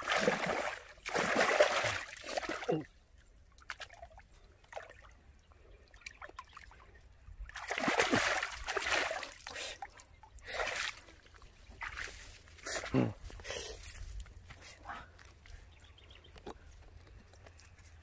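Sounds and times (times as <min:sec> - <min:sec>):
water splashing: 0:00.0 - 0:02.9, 0:07.4 - 0:13.0.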